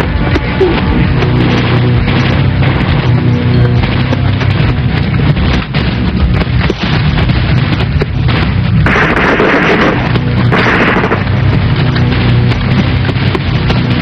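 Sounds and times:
loud blasts: 0.0s - 14.0s
gunfire shots: 6.6s - 13.9s.

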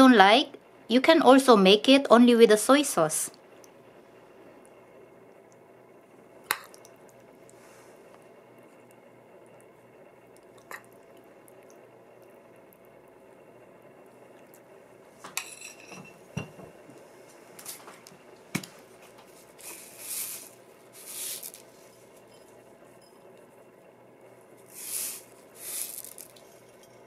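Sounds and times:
metal spoon clinking glass bowl: 15.4s - 16.2s
sesame seeds sprinkled: 19.0s - 23.6s, 24.4s - 27.0s.

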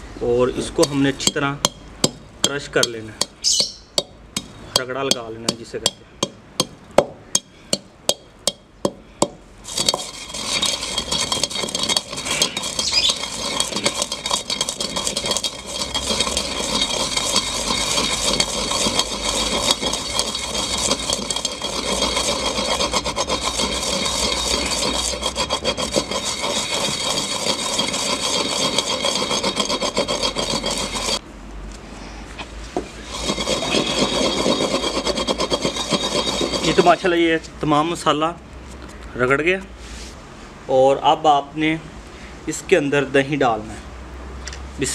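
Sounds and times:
gritty grinding of seeds: 0.6s - 1.8s, 2.4s - 4.0s, 9.6s - 31.2s, 32.8s - 37.4s
pestle pounding spices in mortar: 0.6s - 31.2s, 32.8s - 37.1s.

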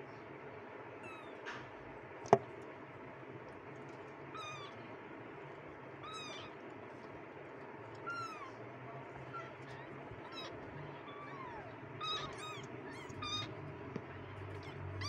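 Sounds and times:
kittens mewing: 5.9s - 6.8s, 7.9s - 15.0s.

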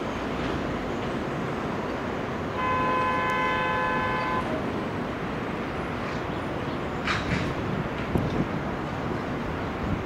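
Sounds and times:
freight train rumbling: 0.0s - 10.0s
locomotive horn blast: 2.5s - 4.6s.

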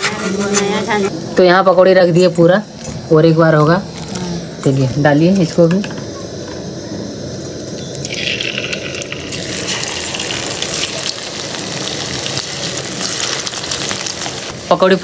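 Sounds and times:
hot oil sizzling and crackling: 7.7s - 15.0s.

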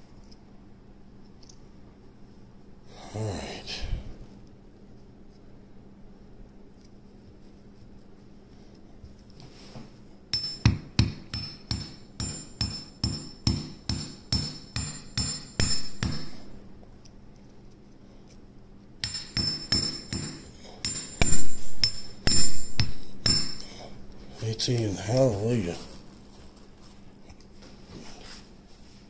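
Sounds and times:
hammer tapping metal pin: 10.3s - 16.4s, 19.0s - 23.7s.

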